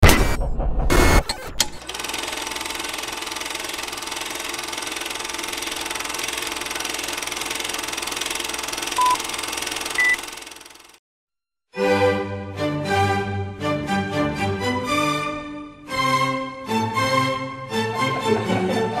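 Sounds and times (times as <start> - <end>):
film projector clatter: 1.6 - 11.0
short beeps: 9.0 - 9.2, 10.0 - 10.2.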